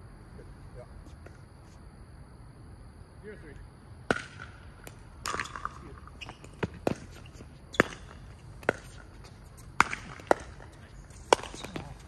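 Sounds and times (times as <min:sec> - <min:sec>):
paddles hitting plastic ball: 0:07.8 - 0:12.0.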